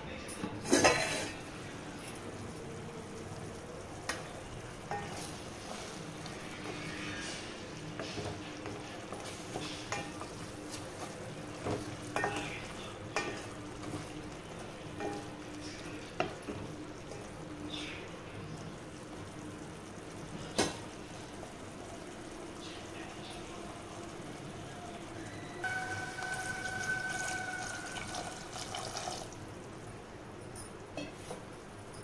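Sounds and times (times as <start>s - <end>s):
curry sizzling in a pot: 0.6s - 32.0s
wooden spatula stirring and scraping: 4.9s - 17.2s.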